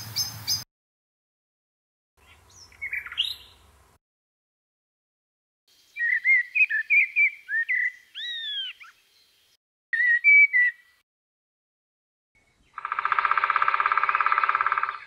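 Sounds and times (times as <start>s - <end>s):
blackbird singing: 2.2s - 3.6s, 5.7s - 11.0s, 12.4s - 15.0s.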